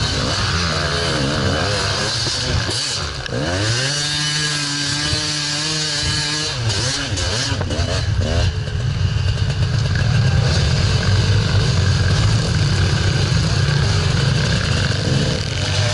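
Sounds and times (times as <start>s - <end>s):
dirt bike engines revving: 0.0s - 15.9s.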